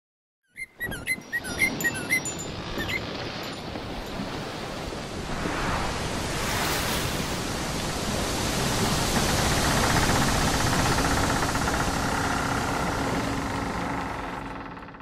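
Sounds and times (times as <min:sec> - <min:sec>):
rushing surf-like noise: 0:04.5 - 0:13.5.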